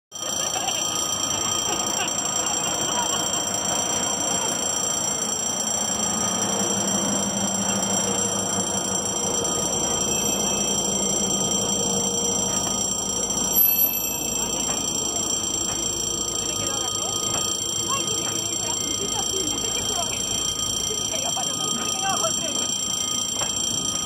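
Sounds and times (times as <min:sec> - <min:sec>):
crossing alarm tone: 0:00.1 - 0:24.0
train rumbling past: 0:03.0 - 0:21.1.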